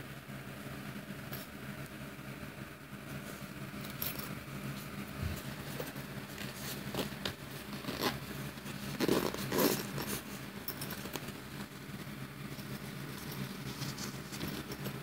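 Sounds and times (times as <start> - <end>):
nylon fabric rustling: 3.1 - 15.0
zipper unzipping: 6.7 - 10.3.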